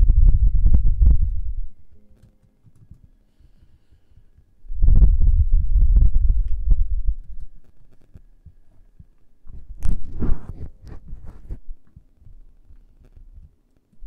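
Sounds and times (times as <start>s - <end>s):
faint clicks and taps: 1.1s - 4.6s, 6.1s - 14.0s
microphone handling thumps: 3.9s - 13.6s.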